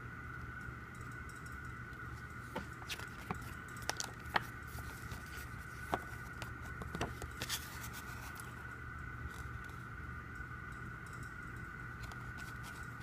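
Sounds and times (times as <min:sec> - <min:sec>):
steady background hum: 0:00.0 - 0:13.0
paper clicks and rustles: 0:02.6 - 0:08.5.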